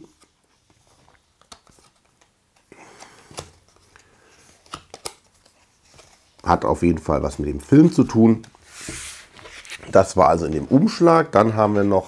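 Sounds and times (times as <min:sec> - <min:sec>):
playing cards sliding and rubbing: 0:07.7 - 0:10.7.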